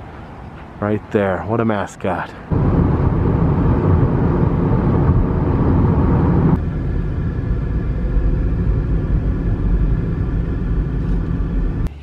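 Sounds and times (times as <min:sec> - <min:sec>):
car cabin road noise: 0:00.0 - 0:12.0.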